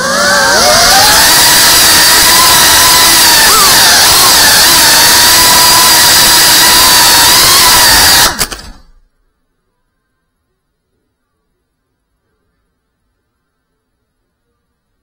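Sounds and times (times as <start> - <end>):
drone propellers whining: 0.0 - 8.8.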